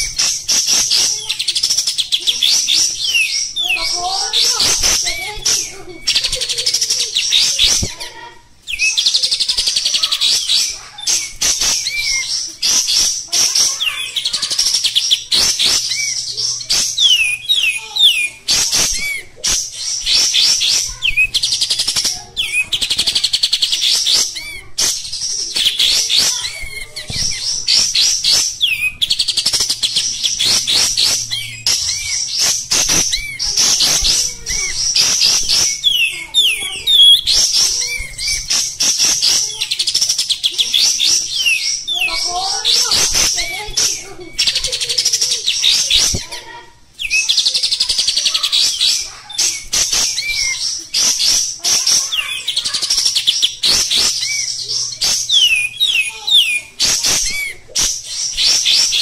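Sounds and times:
bird singing rapid chattering phrases: 0.0s - 59.0s
downward-slurred bird whistles: 8.7s - 13.1s, 47.0s - 51.4s.

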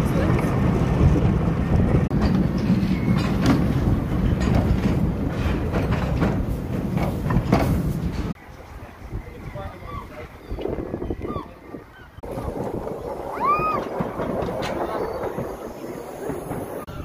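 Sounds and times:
wheels clicking over rail joints: 0.0s - 8.7s, 12.2s - 17.0s
train wheels rumbling on rail: 0.0s - 8.8s, 12.2s - 17.0s.

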